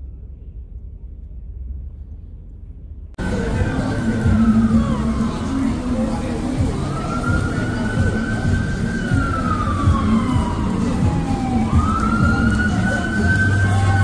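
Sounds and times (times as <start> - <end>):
city street rumble: 0.0 - 14.0
siren wailing: 3.2 - 14.0.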